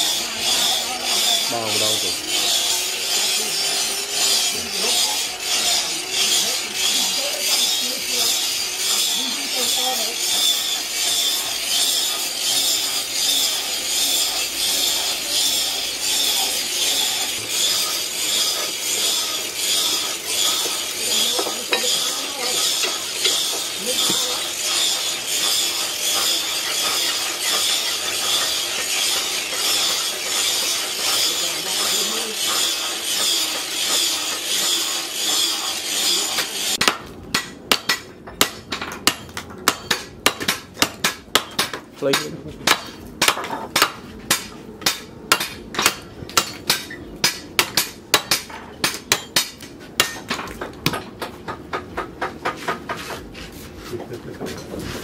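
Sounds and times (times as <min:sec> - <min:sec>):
knife scraping on sharpening stone: 0:00.5 - 0:36.8
knife chopping bamboo on wood: 0:36.4 - 0:53.3.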